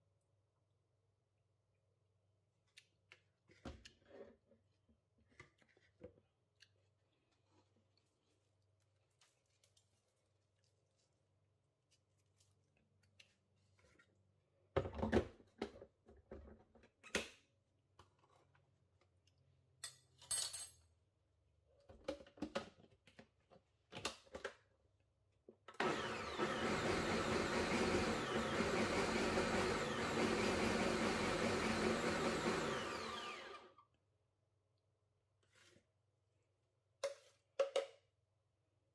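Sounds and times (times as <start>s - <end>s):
blender running: 25.8s - 33.8s.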